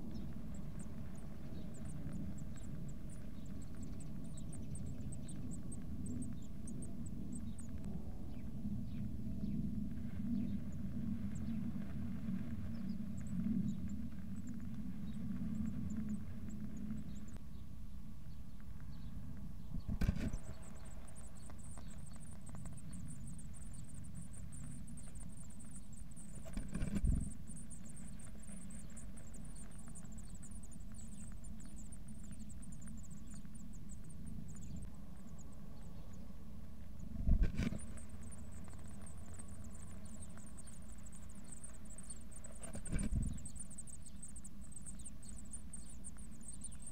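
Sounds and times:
nestlings begging chatter: 0:00.0 - 0:09.1, 0:19.8 - 0:46.9
low hum: 0:00.0 - 0:46.9.

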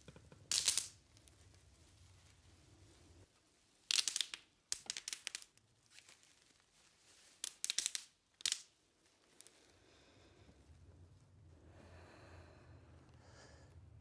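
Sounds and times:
crinkling rustling noise: 0:00.3 - 0:11.5.

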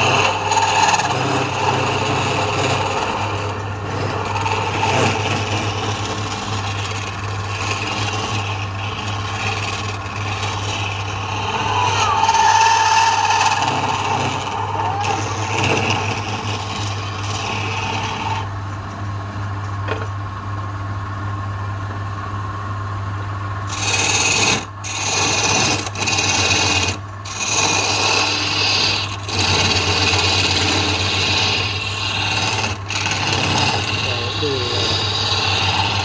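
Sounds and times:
chisel scraping spinning wood: 0:00.0 - 0:20.0, 0:23.7 - 0:36.0
wood lathe humming: 0:00.0 - 0:20.0, 0:23.5 - 0:36.0.

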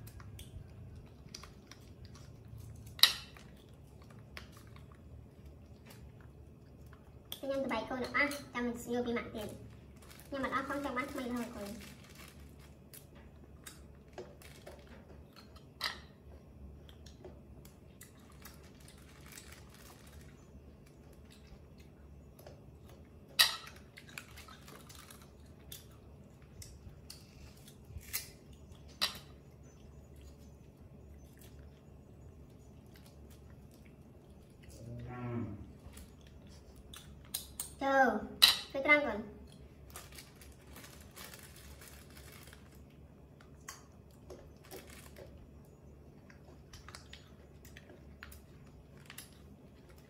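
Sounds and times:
faint room hum: 0:00.0 - 0:50.0
low murmur: 0:34.5 - 0:36.7.

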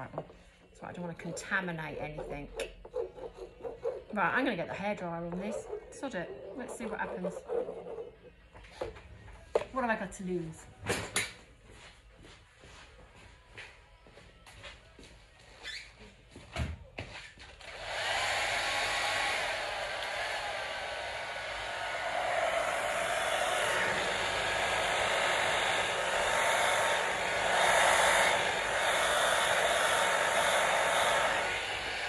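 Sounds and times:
hairdryer blowing: 0:03.6 - 0:08.1, 0:17.6 - 0:32.0.

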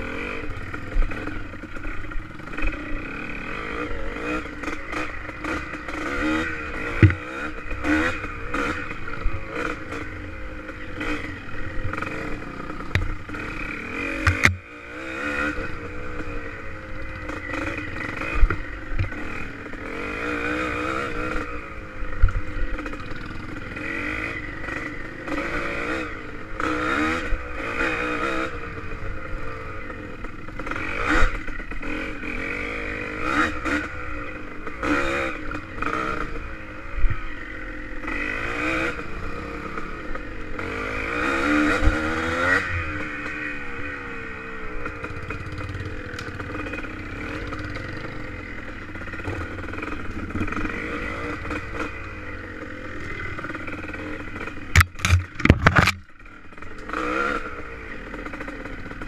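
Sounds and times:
motorcycle engine revving: 0:00.0 - 0:59.0
clatter and knocks from bumps: 0:54.7 - 0:56.1.

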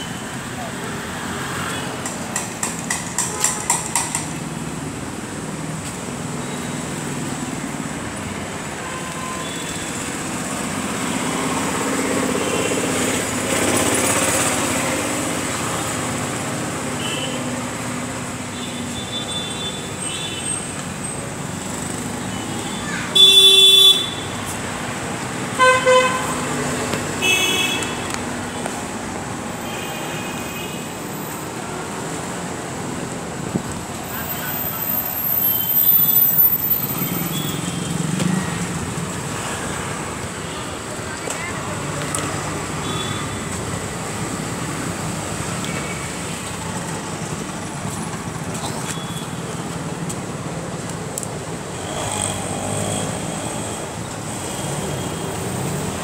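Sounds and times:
street traffic noise: 0:00.0 - 0:56.0
vehicle horns honking: 0:23.1 - 0:24.4, 0:25.6 - 0:26.4, 0:27.2 - 0:28.1, 0:42.8 - 0:43.5.

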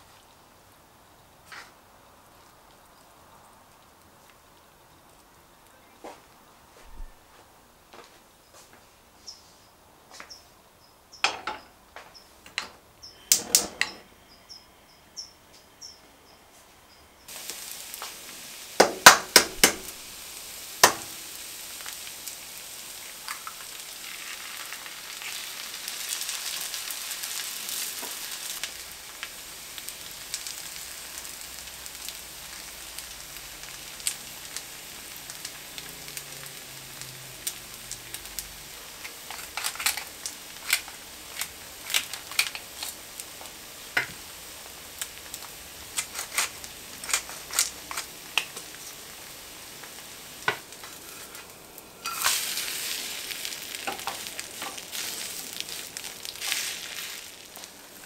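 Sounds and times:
potato sizzling in a pan: 0:00.0 - 0:06.7, 0:16.9 - 0:58.0
kitchen knocks and clicks: 0:12.5 - 0:14.1, 0:18.8 - 0:19.9
sharp knocks on pan: 0:18.8 - 0:19.9, 0:20.8 - 0:21.1.

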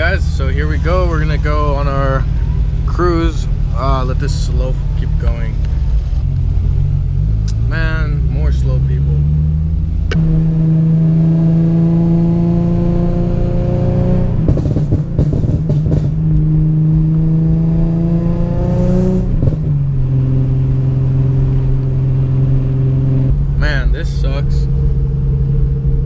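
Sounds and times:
car engine accelerating: 0:00.0 - 0:26.0
exhaust crackles and pops: 0:13.9 - 0:18.0.

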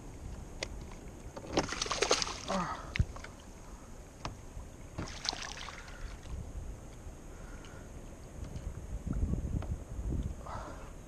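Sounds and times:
fish thrashing and splashing in water: 0:01.5 - 0:02.6, 0:05.0 - 0:06.0.

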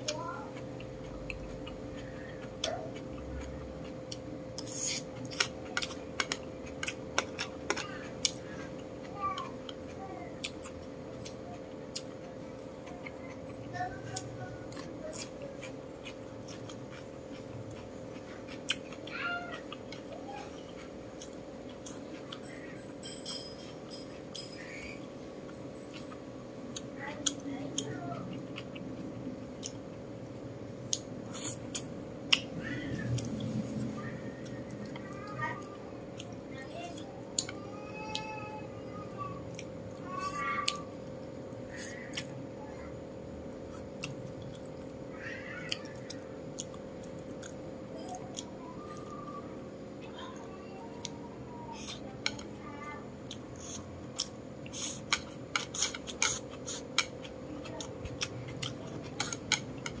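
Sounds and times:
soft chewing: 0:00.0 - 0:38.4, 0:39.0 - 1:00.0
chopsticks clicking on plate: 0:51.8 - 0:52.6, 0:58.0 - 1:00.0.

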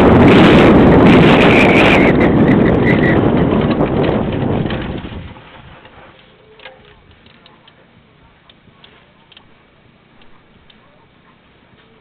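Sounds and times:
rushing wind: 0:00.0 - 0:06.2
bike tyres rolling over dirt: 0:00.0 - 0:07.6.

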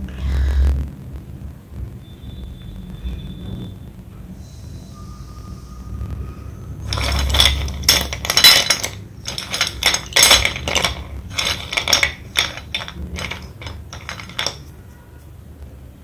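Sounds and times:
pencil sticks clattering and clinking: 0:06.8 - 0:14.8.

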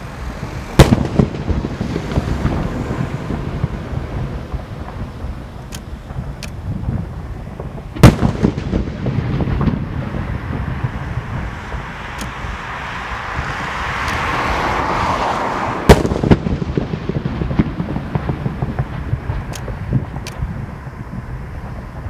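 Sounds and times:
firework shells bursting: 0:00.2 - 0:12.6, 0:15.9 - 0:22.0.

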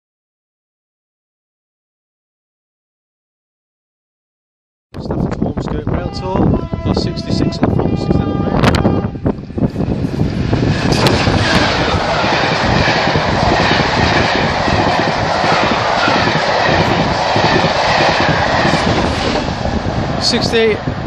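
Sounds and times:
train coaches rushing and clattering: 0:05.8 - 0:21.0
diesel locomotive passing fast: 0:05.9 - 0:21.0.

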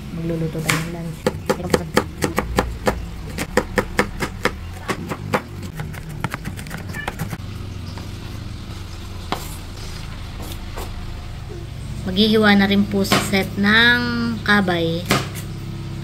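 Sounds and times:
low steady hum: 0:00.0 - 0:16.0
knife chopping on cutting board: 0:00.7 - 0:07.4.

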